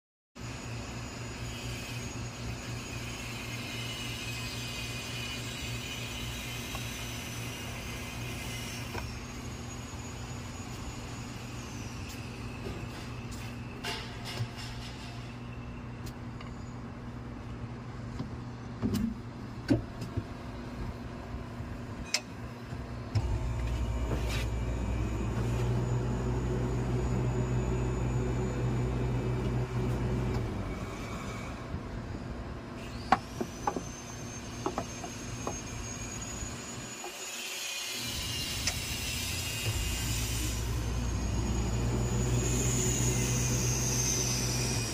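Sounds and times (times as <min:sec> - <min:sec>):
high thin whistle: 0:01.3 - 0:17.0, 0:32.8 - 0:44.9
low machine hum: 0:09.0 - 0:33.6, 0:39.2 - 0:44.9.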